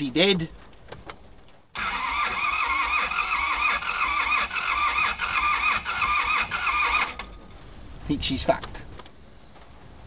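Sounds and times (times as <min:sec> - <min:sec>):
starter motor cranking engine: 0:01.8 - 0:07.5.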